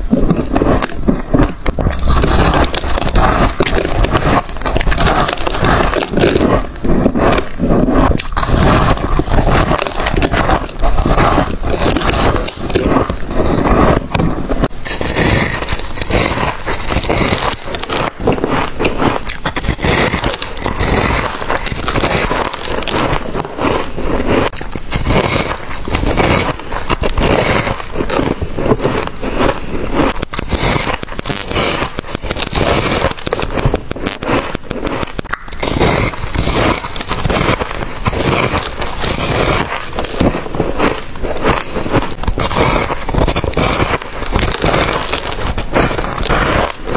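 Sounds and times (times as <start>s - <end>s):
frost crunching when chewed: 0.0s - 46.9s.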